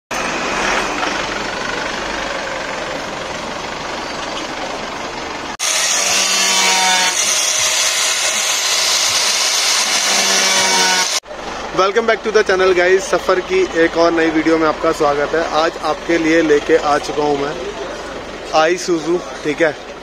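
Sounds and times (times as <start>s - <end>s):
pickup truck idling: 0.1s - 5.6s, 11.2s - 20.0s
street noise: 0.1s - 20.0s
power tool disc whine: 5.6s - 11.2s.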